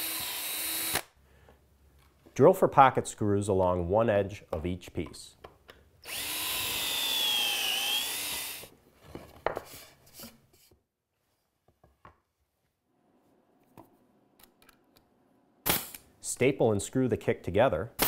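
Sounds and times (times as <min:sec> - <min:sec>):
drill boring into plywood: 0:00.0 - 0:01.1, 0:06.0 - 0:08.7.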